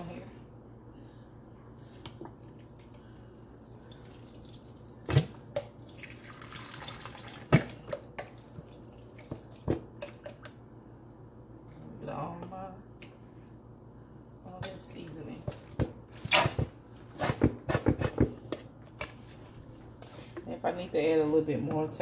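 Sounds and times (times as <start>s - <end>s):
liquid glugging and splashing: 1.8s - 10.5s.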